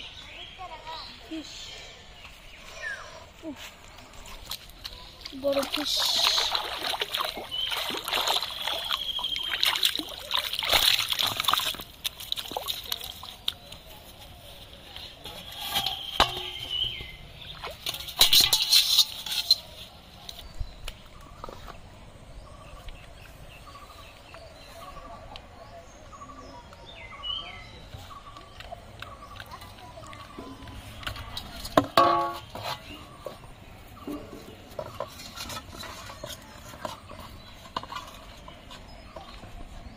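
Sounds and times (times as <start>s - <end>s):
fish thrashing and splashing: 5.4s - 13.6s
splash into metal bowl: 5.6s - 13.2s.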